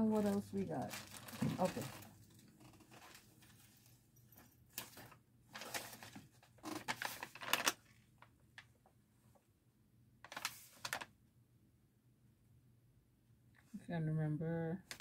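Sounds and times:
packaging rustling and crinkling: 0.0s - 8.7s, 10.2s - 11.1s.

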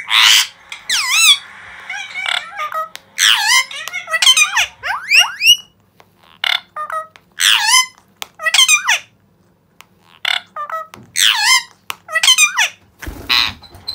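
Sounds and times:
parakeets squeaky calls: 0.0s - 9.1s.

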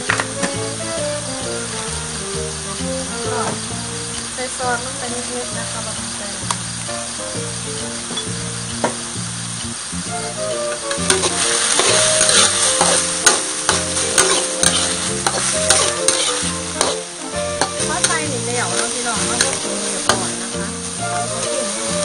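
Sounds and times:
meat sizzling in a wok: 0.0s - 22.0s
metal spatula scraping pan: 10.8s - 20.4s.

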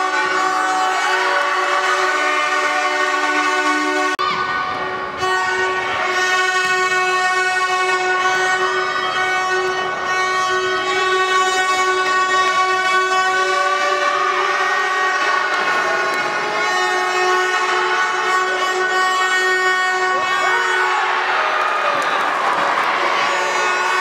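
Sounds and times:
handheld horns blowing: 0.0s - 24.0s.

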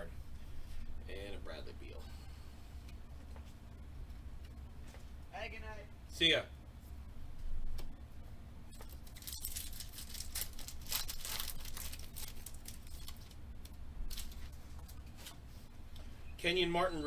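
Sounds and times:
foil wrapper crinkling: 8.7s - 15.4s.

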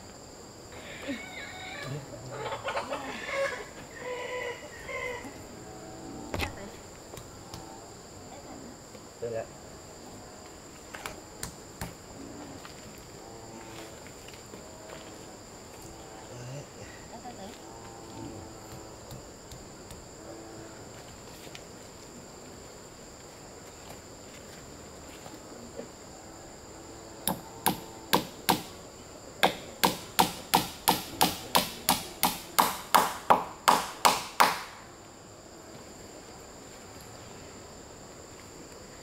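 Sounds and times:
high insect buzz: 0.0s - 39.0s
hammer nailing wood: 27.3s - 28.7s, 29.4s - 34.7s.

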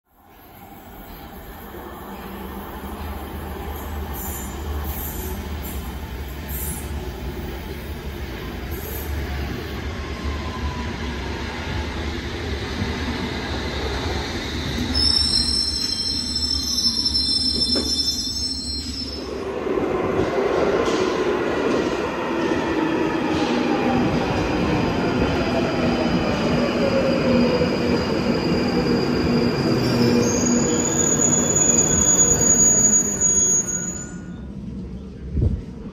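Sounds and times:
low train whine: 0.1s - 35.9s
high-pitched wheel squeal: 14.9s - 19.3s, 28.4s - 34.4s.

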